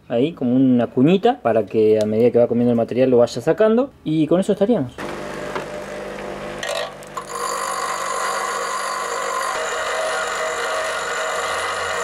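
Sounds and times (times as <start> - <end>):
bench grinder grinding metal: 5.0 - 12.0.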